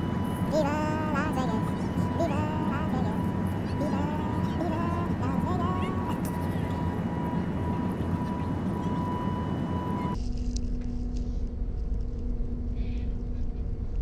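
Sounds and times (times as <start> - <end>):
airliner cabin engine roar: 0.0 - 14.0
steady whine: 0.0 - 14.0.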